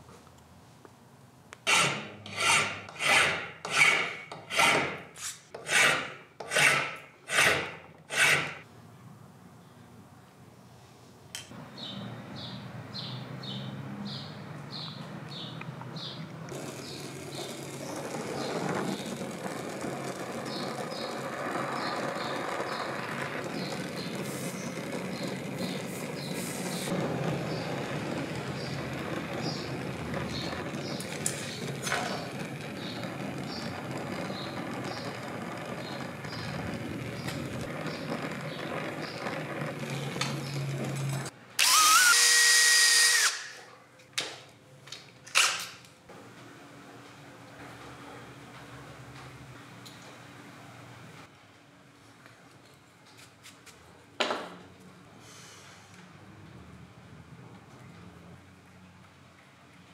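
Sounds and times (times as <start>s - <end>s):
rising whir: 15.8s - 43.5s
gas torch flame hissing: 23.2s - 41.3s.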